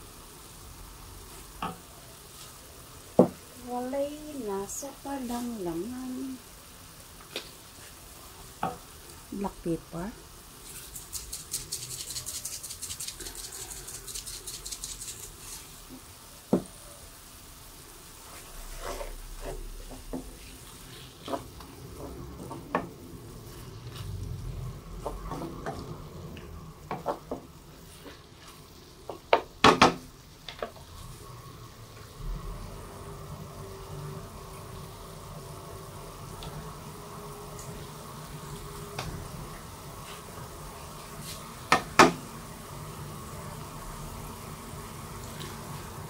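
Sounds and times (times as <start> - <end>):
chicken sizzling in pan: 0.0 - 46.0
pepper shaker rattling: 10.6 - 15.8.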